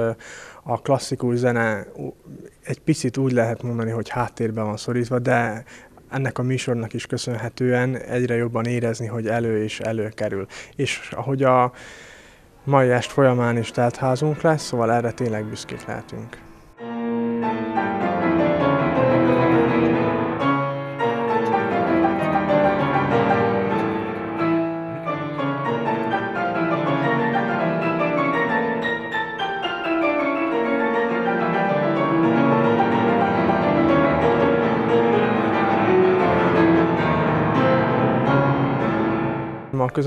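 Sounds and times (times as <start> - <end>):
classical piano playing: 12.7 - 39.8.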